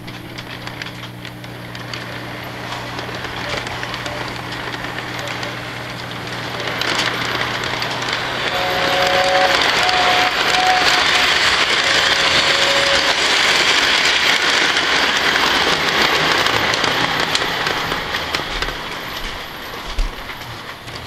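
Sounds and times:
model train rolling on track: 0.0s - 21.0s.

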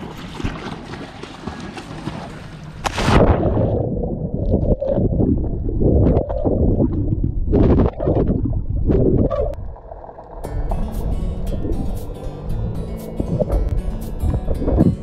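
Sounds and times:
water splash: 0.0s - 11.9s
muffled underwater gurgling and bubbles: 13.1s - 15.0s.

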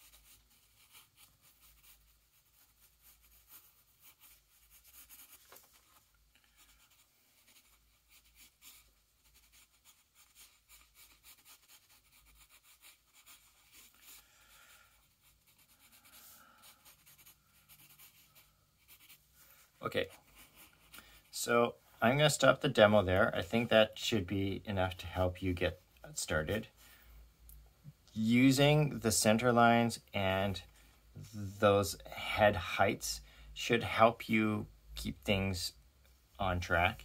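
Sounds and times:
pencil scratching on paper: 0.0s - 5.6s, 6.5s - 14.2s, 15.0s - 19.3s, 19.9s - 21.3s.

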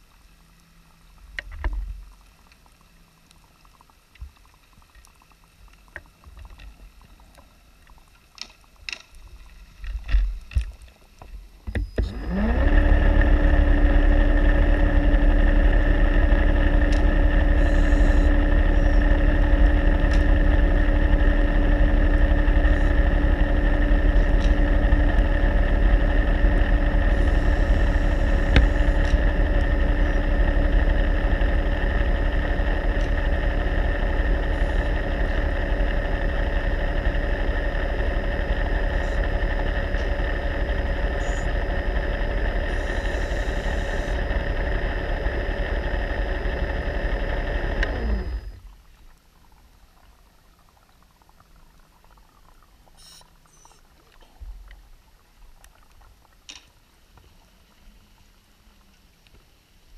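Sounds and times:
underwater motor whining and humming: 0.0s - 59.9s
faint clicks and knocks: 0.5s - 12.1s.

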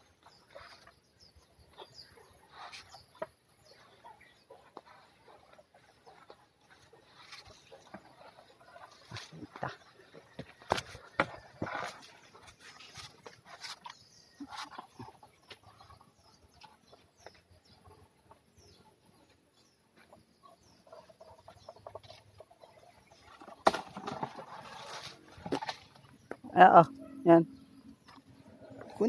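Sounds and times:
tree branches and leaves rustling: 20.9s - 26.4s.

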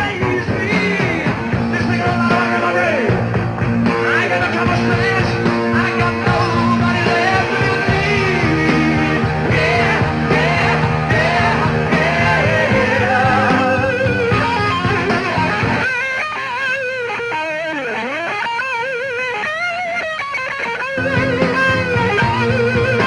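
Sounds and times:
male singer: 0.0s - 3.2s, 3.9s - 14.1s
electric guitar with vibrato: 0.0s - 23.0s
rock band playing live: 0.0s - 23.0s.

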